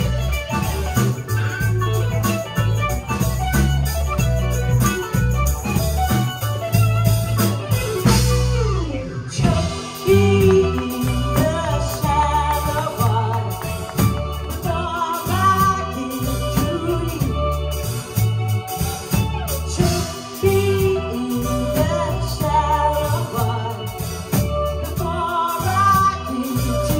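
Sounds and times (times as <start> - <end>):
drums: 0.0 - 26.9
electric bass: 0.0 - 26.9
electric guitar: 0.0 - 26.9
keyboards: 0.0 - 26.9
woman singing lead: 8.1 - 26.9.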